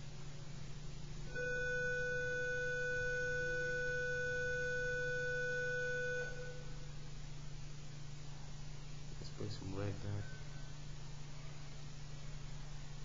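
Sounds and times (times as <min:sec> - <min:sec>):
steady electronic tone: 0:01.2 - 0:07.7.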